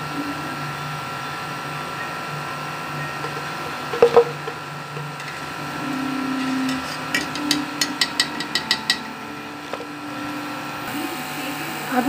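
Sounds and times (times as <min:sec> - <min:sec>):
metal skimmer tapping a pan: 0:03.3 - 0:04.6, 0:06.4 - 0:09.2.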